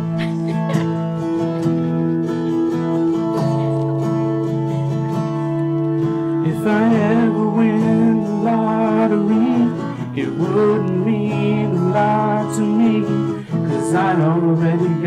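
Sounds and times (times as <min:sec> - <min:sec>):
acoustic guitar: 0:00.0 - 0:15.0
man singing: 0:06.4 - 0:15.0.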